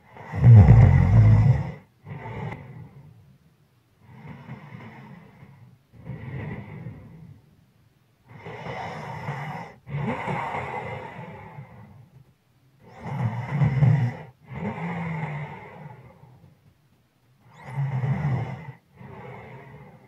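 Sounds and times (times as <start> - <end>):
person breathing heavily in sleep: 0.0 - 3.1.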